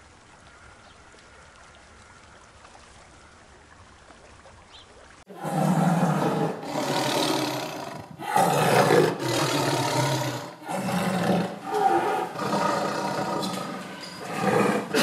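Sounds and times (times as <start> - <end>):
tiger roaring: 5.3 - 15.0.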